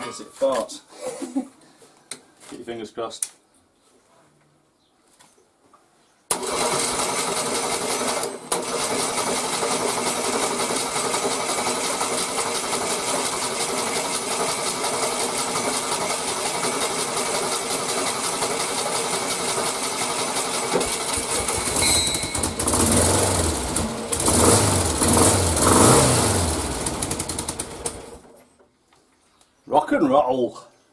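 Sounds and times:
starter motor cranking engine: 6.3s - 28.3s.

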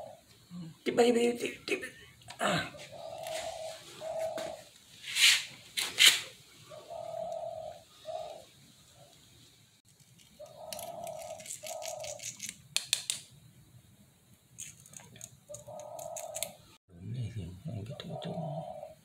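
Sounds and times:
doves cooing: 0.0s - 0.8s, 2.3s - 4.8s, 6.6s - 9.1s, 10.4s - 12.4s, 15.5s - 16.7s, 17.5s - 19.0s
metal tools clicking and rattling: 10.0s - 12.6s.

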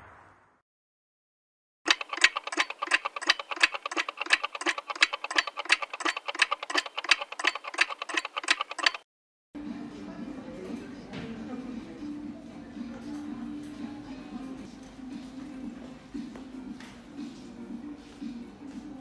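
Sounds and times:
mechanical ticking: 1.9s - 9.0s.

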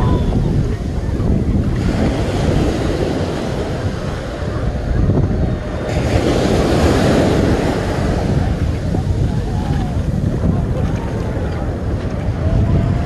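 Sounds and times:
ocean surf washing up beach: 0.0s - 13.0s
wind buffeting microphone: 0.0s - 13.0s.

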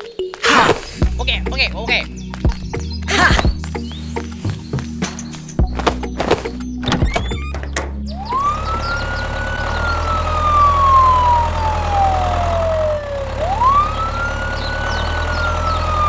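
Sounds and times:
ambulance siren wailing: 8.1s - 16.0s.

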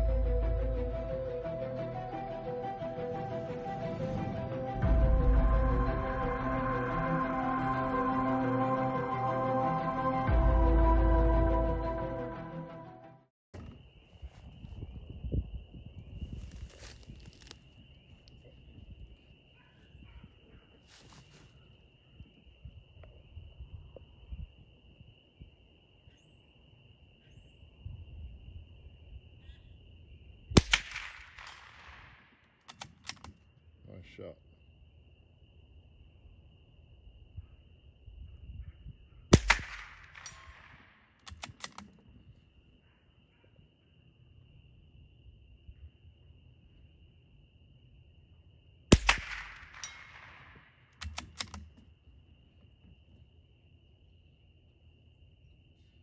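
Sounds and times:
crickets chirping: 13.6s - 56.0s
rifle shot with echo: 30.6s - 32.3s, 39.3s - 41.7s, 48.9s - 51.6s
rifle bolt metallic clicks: 32.7s - 33.4s, 39.4s - 42.0s, 51.0s - 51.8s.

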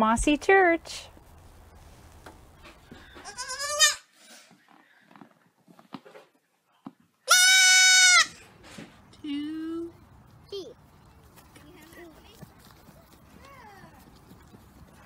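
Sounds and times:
baby goat bleating: 3.2s - 4.1s, 7.3s - 8.4s.

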